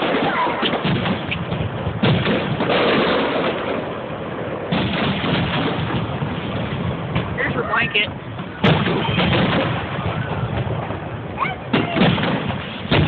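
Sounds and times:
firework bangs: 0.0 - 13.0
firework crackle: 0.0 - 13.0.

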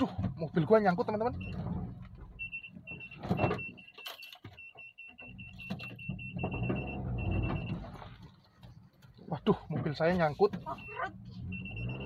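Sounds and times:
car warning beeper: 1.1 - 8.1, 10.6 - 12.0.

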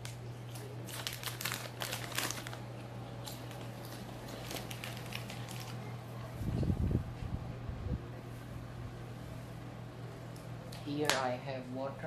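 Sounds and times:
chip bag crinkling: 0.0 - 6.2
crunchy chewing of chips: 0.0 - 6.3
steady low hum: 0.0 - 12.0.

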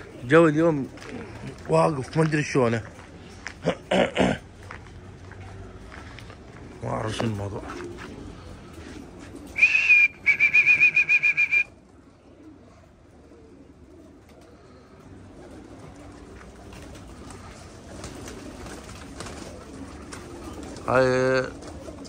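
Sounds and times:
high-pitched warbling whistle: 9.6 - 11.7.

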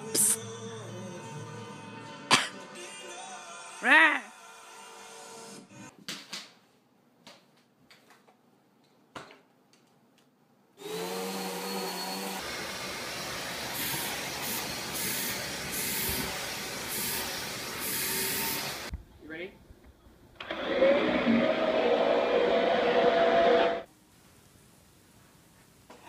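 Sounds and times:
vacuum cleaner motor whine: 10.8 - 18.9
vacuum nozzle sucking over fur: 10.8 - 18.9.

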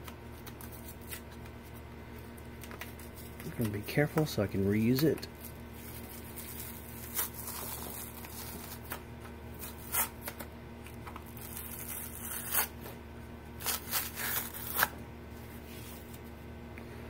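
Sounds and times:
felt pad ripping off: 6.3 - 9.0, 9.6 - 10.4, 11.2 - 12.9, 13.6 - 15.0.

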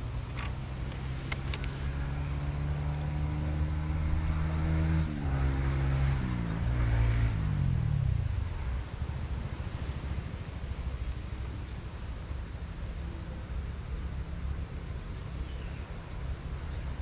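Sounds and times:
engine running: 0.0 - 11.2.

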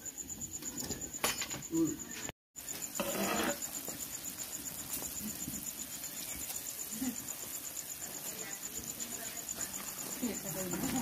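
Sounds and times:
cricket chirping: 0.0 - 11.0
syrup boiling and bubbling: 2.6 - 11.0.

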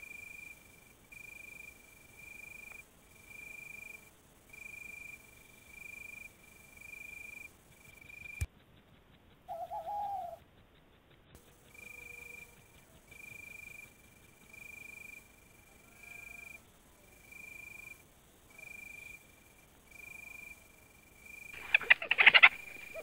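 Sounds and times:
insect chirping: 0.0 - 23.0
short wavering call: 9.5 - 10.4.

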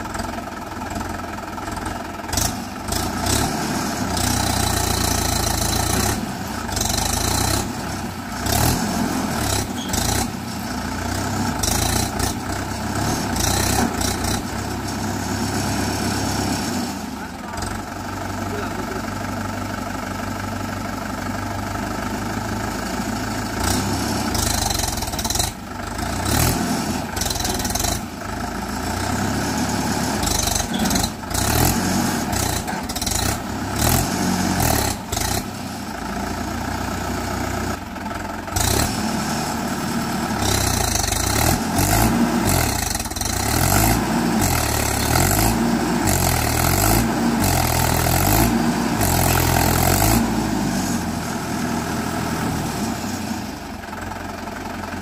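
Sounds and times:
tractor diesel engine straining: 0.0 - 55.0.

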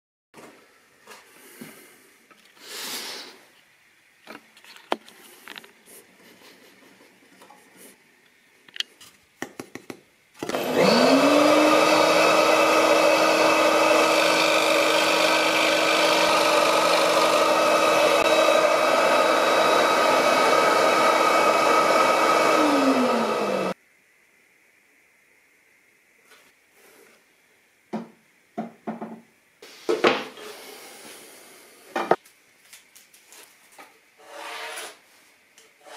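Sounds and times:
scroll saw cutting board: 10.4 - 23.8, 34.2 - 35.0.

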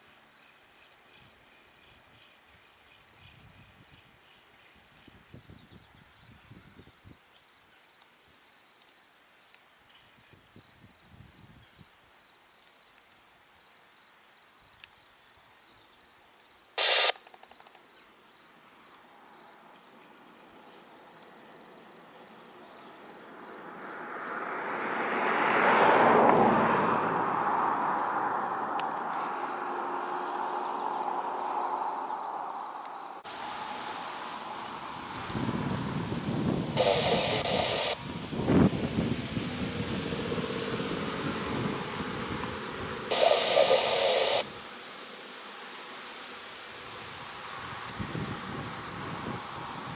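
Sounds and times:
insects chorus: 0.0 - 49.9
vehicle passing: 23.7 - 44.4.

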